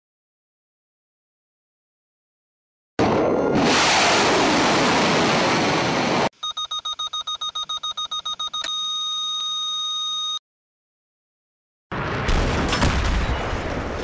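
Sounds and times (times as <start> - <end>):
rapid electronic beeping: 6.4 - 10.4.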